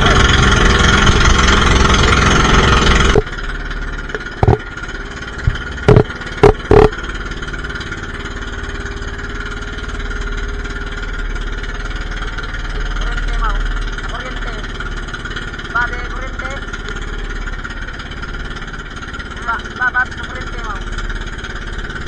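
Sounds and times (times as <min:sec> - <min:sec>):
boat engine running: 0:00.0 - 0:22.0
loud knocks: 0:04.2 - 0:04.6, 0:05.4 - 0:06.9.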